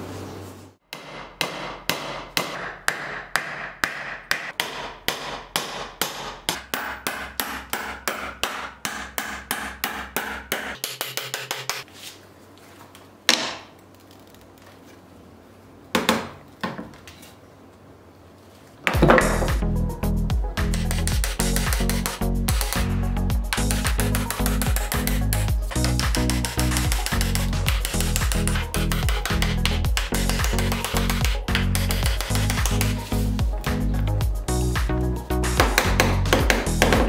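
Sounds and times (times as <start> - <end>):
hammer striking nail into wood: 0.9 - 11.7, 35.6 - 37.0
sharp knocks: 35.6 - 37.0.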